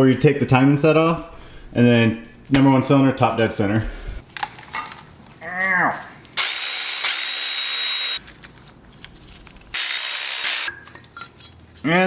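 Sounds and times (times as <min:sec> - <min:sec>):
electric ratchet whirring: 0:06.4 - 0:08.2, 0:09.7 - 0:10.7.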